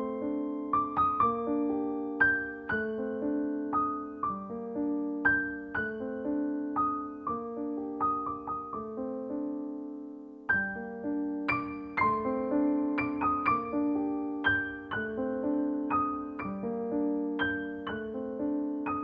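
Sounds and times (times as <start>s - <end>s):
gentle piano melody: 0.0s - 19.0s.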